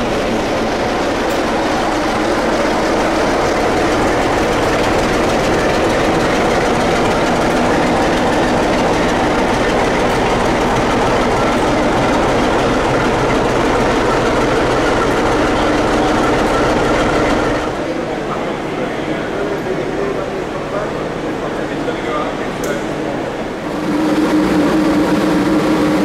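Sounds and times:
diesel locomotive engine running: 0.0s - 26.0s.

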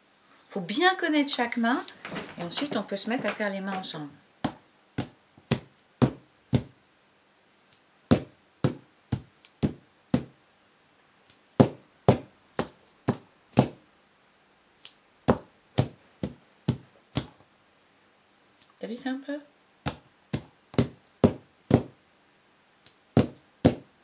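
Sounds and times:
fingertips tapping on paper: 2.4s - 6.8s, 8.1s - 10.4s, 11.6s - 13.8s, 15.2s - 17.4s, 19.8s - 21.9s, 23.1s - 23.9s.

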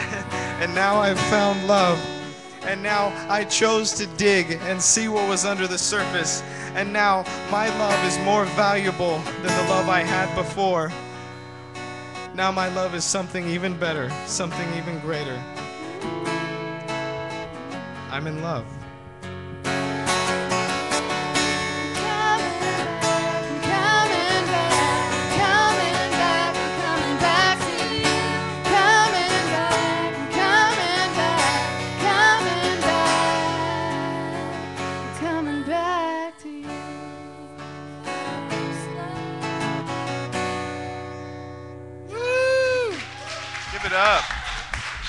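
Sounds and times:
acoustic guitar strumming: 0.0s - 43.0s
woman singing: 15.6s - 16.8s, 21.5s - 39.9s.

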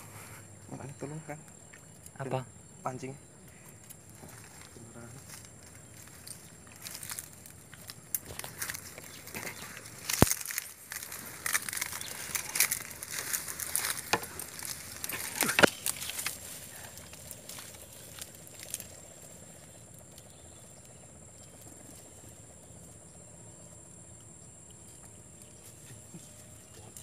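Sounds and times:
high-pitched insect trill: 0.0s - 27.0s
dry reeds crackling and rustling: 3.5s - 23.1s.

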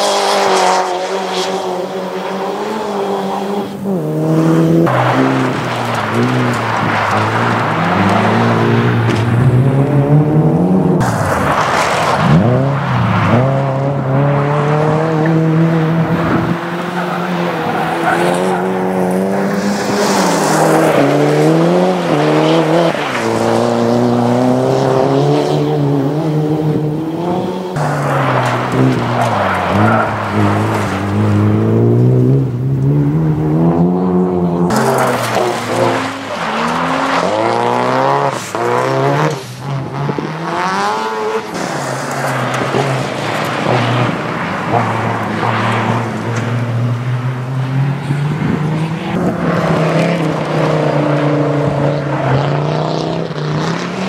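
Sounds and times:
rally car engines revving: 0.0s - 54.0s
tyres sliding and spraying gravel: 4.9s - 9.5s, 11.0s - 13.4s, 16.9s - 25.0s, 27.7s - 31.5s, 34.7s - 46.5s.

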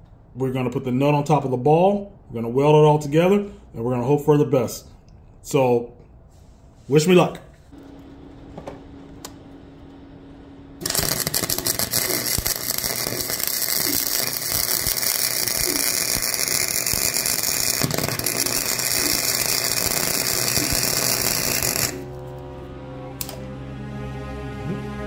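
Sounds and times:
welding arc crackling: 10.8s - 22.2s.

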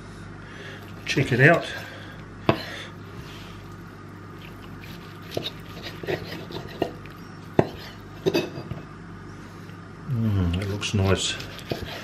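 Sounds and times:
knife slicing steak: 4.6s - 8.1s, 11.0s - 12.0s.

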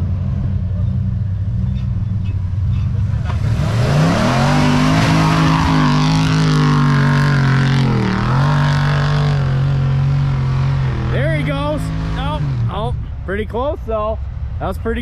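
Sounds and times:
engine revving hard: 3.2s - 12.9s.

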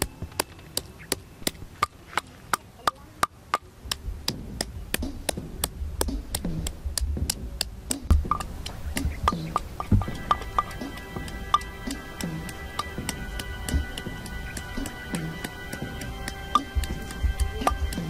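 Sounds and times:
heavy dull thuds: 4.0s - 12.0s.

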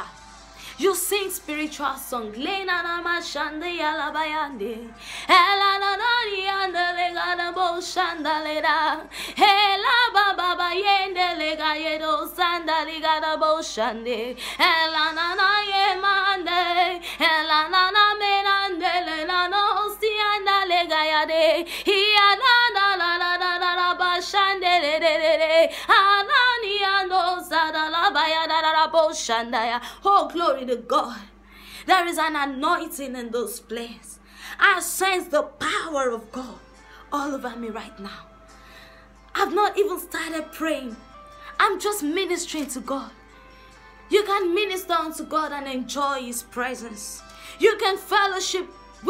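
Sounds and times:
woman singing unaccompanied: 0.8s - 38.3s, 39.3s - 41.0s, 41.6s - 43.2s, 44.1s - 48.8s.

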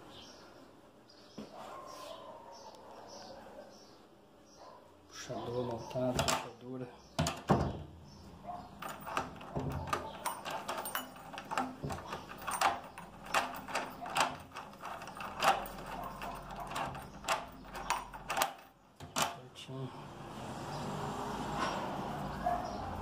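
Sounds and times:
key clicking in a door lock: 8.8s - 19.4s.

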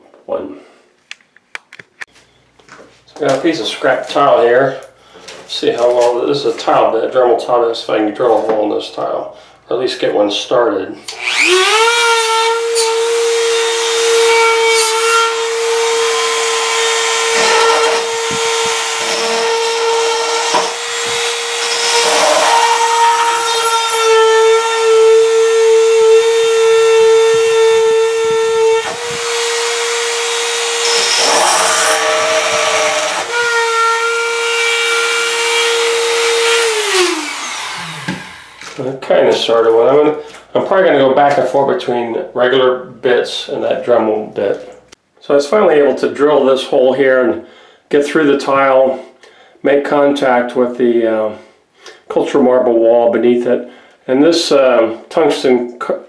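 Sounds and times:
rotary tool high-pitched whine: 11.1s - 11.9s, 35.3s - 38.7s.

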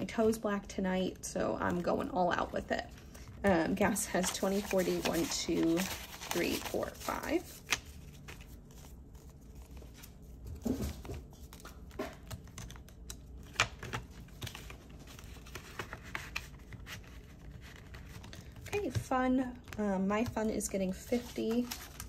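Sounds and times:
paper banknotes rustling: 3.7s - 19.0s, 19.7s - 22.0s
binder pages clicking and tapping: 3.8s - 22.0s.

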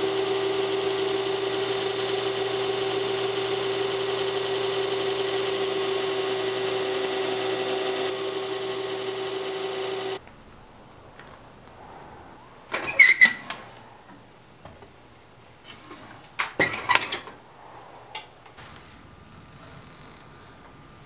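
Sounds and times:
kiln door metal clanking and scraping: 12.7s - 13.7s, 15.7s - 17.4s.

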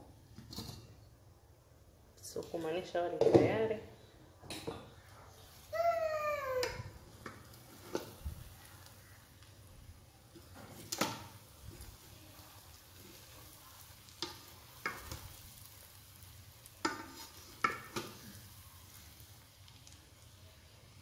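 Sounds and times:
wooden spoon scraping metal pot: 16.8s - 18.2s.

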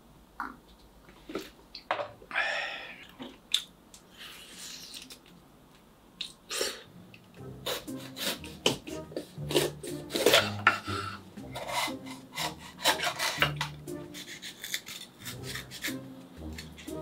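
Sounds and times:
knife slicing crisp pepper: 11.6s - 17.0s.

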